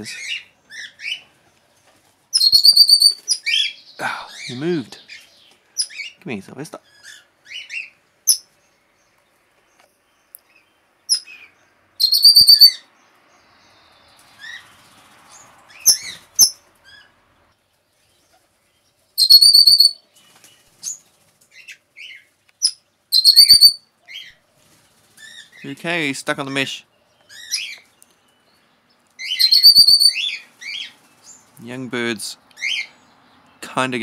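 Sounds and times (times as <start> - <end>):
parrot chirps: 2.3 - 3.8, 11.1 - 12.8, 15.7 - 17.1, 19.2 - 20.0, 21.6 - 24.4, 29.2 - 30.9
parrot whistling: 2.4 - 3.2, 12.0 - 12.8, 19.2 - 20.0, 23.1 - 23.8, 29.2 - 30.4.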